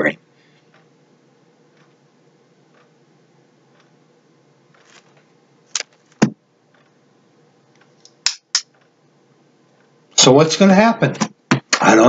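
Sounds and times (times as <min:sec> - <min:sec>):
eyeglasses clicking and tapping: 0:08.0 - 0:08.7.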